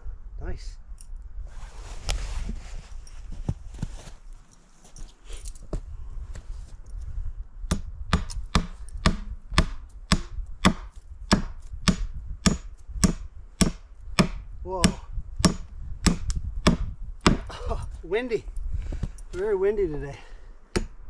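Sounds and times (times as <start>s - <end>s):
wind rumbling on microphone: 0.0s - 4.4s, 5.0s - 21.0s
hammer driving nails into wood: 7.7s - 17.5s.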